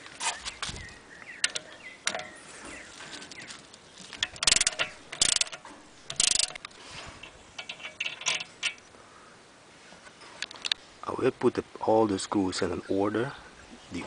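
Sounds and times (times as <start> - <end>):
ratchet wrench clicking: 4.2 - 6.7.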